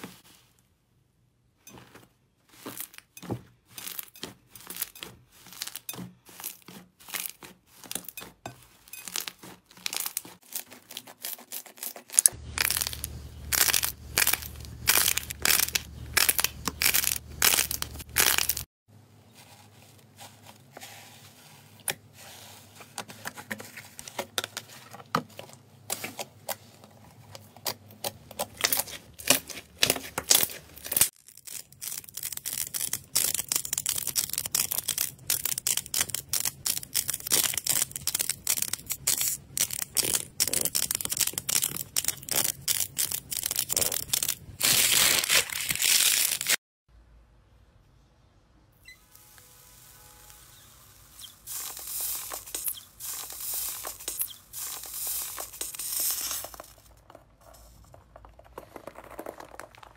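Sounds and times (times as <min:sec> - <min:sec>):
soft clay crackling when pressed: 0:00.0 - 0:44.6, 0:50.2 - 0:59.9
hands squeezing slime: 0:28.6 - 0:46.3, 0:51.1 - 0:57.2.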